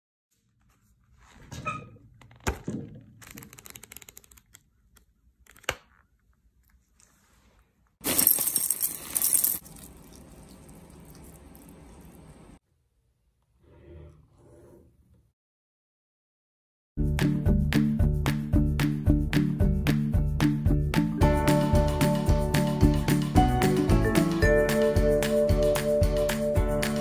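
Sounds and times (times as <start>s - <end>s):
paper rustling: 6.8s - 10.0s.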